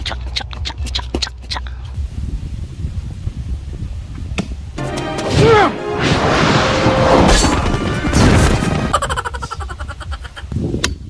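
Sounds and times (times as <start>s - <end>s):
crash and whack effects: 4.8s - 8.9s
music cue: 4.8s - 9.0s.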